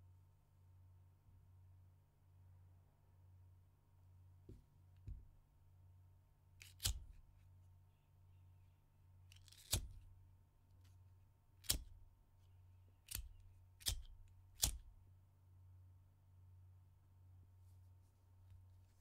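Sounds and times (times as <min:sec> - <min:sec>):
lighter ignition clicks: 0:13.1 - 0:14.9.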